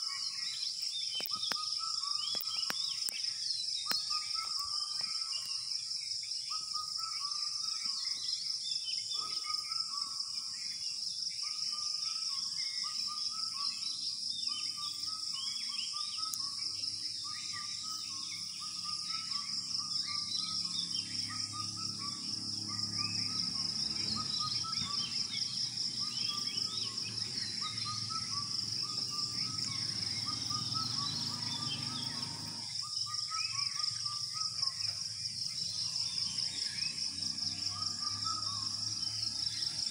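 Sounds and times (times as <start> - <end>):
birds chirping and calling: 0.0 - 39.9
crickets trilling: 0.0 - 39.9.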